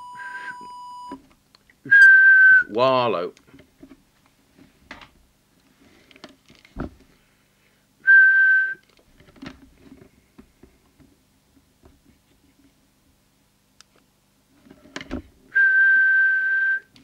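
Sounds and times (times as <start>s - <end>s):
person whistling a steady note: 0.0s - 1.2s, 1.9s - 2.8s, 8.0s - 8.8s, 15.5s - 17.0s.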